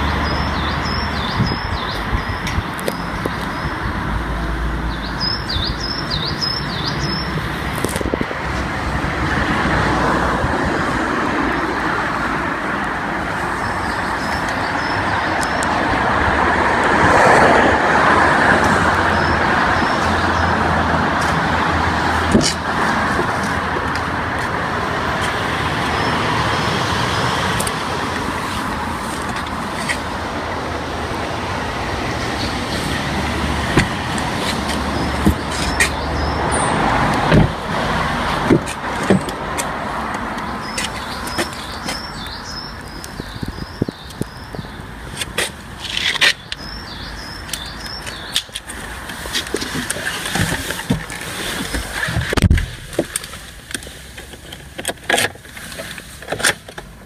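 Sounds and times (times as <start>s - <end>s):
passing road traffic: 0.0s - 57.0s
bird chirps: 4.9s - 7.4s, 46.3s - 48.5s.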